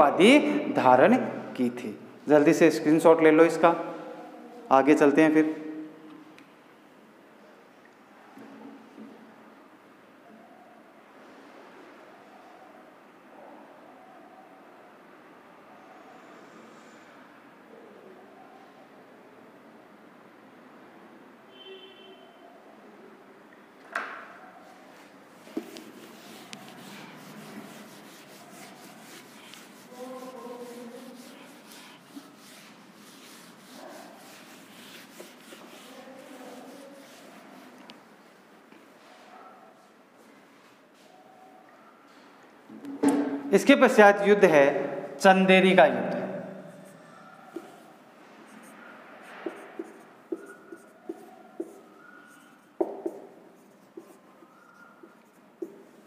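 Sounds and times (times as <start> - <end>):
brief tone: 21.5 - 22.4
eraser rubbing on whiteboard: 25.0 - 38.1, 46.7 - 56.0.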